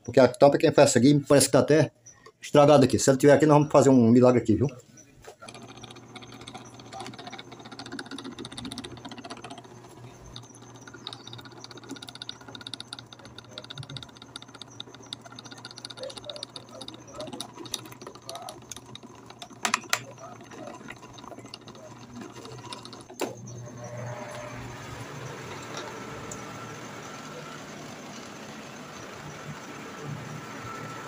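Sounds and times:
electric fan motor humming: 0:02.7 - 0:31.0
fast fine ticking of fan gear: 0:05.3 - 0:31.0.

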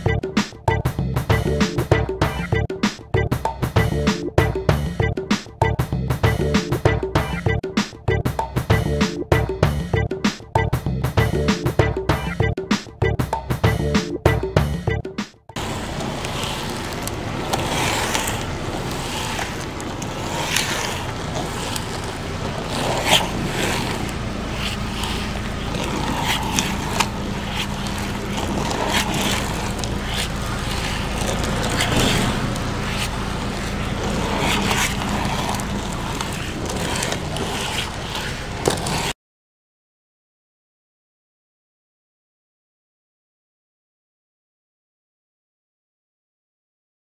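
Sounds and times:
skates clicking and scraping: 0:00.0 - 0:10.4, 0:15.5 - 0:39.2
skate wheels rolling on asphalt: 0:15.6 - 0:39.2.

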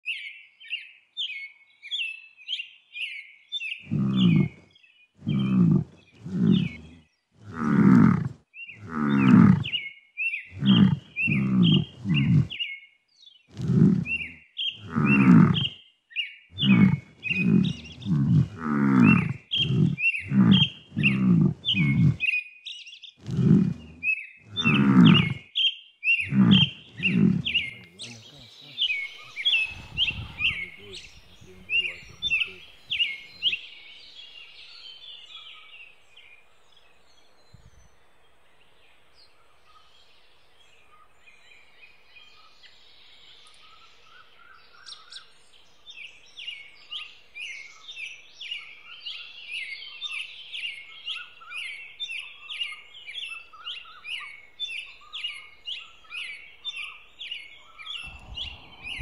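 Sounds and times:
birds chirping: 0:00.0 - 0:59.0
buffalo calling: 0:03.9 - 0:04.6, 0:05.2 - 0:09.8, 0:10.6 - 0:12.6, 0:13.5 - 0:15.7, 0:16.6 - 0:22.2, 0:23.2 - 0:25.4, 0:26.2 - 0:33.7.

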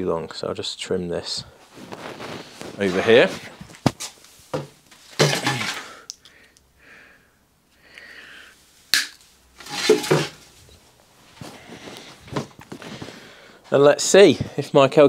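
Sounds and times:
handling clatter: 0:09.6 - 0:10.6.

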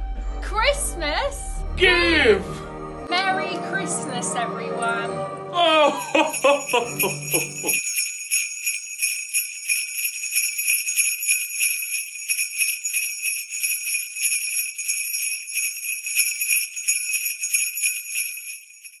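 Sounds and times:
jingle bells shaken: 0:05.7 - 0:19.0.

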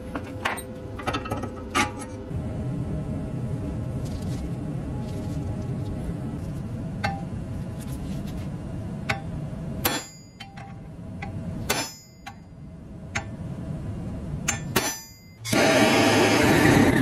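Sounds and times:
hammer tapping metal punch: 0:09.1 - 0:12.5, 0:14.4 - 0:15.5.

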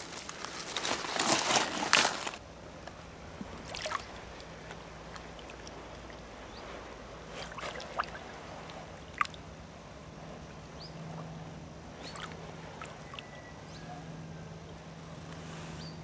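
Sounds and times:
water sloshing and splashing: 0:03.3 - 0:09.5, 0:12.0 - 0:13.4.

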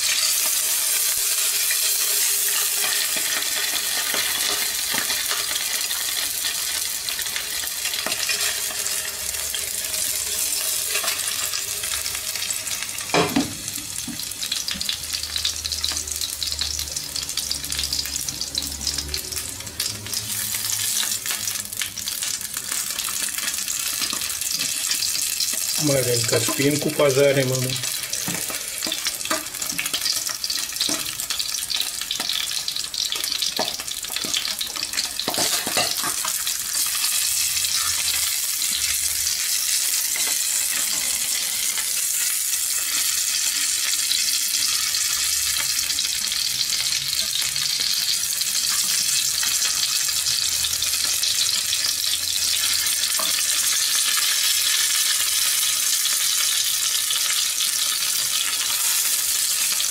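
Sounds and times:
fish sizzling in frying pan: 0:00.0 - 0:59.9.

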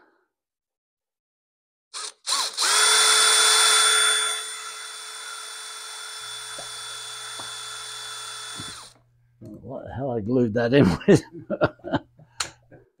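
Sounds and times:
cordless drill whining: 0:02.0 - 0:09.1.

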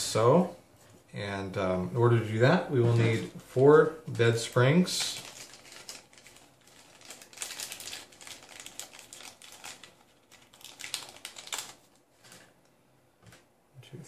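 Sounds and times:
plastic bag crinkling: 0:04.8 - 0:12.6.

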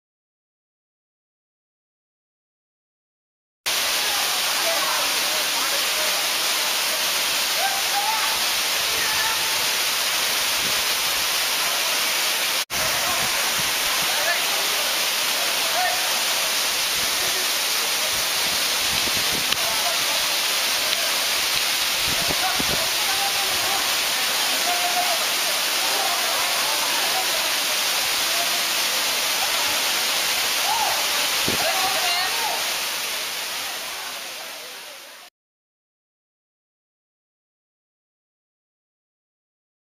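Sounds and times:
waterfall rushing: 0:03.7 - 0:35.3.

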